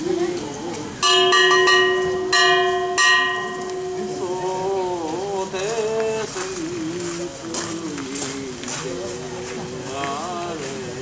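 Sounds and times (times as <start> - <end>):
small bell ringing: 1.0 - 4.8
man chanting: 3.9 - 11.0.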